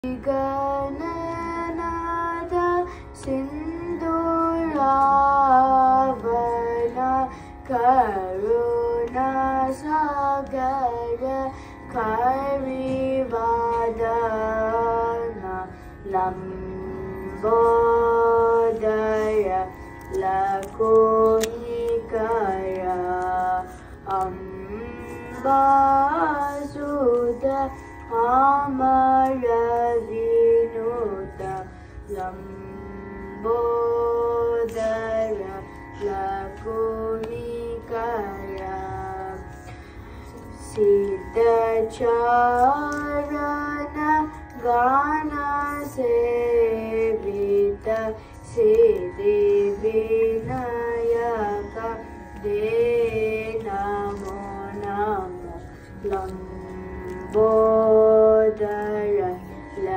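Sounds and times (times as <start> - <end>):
child singing: 0.0 - 32.5, 40.6 - 55.4.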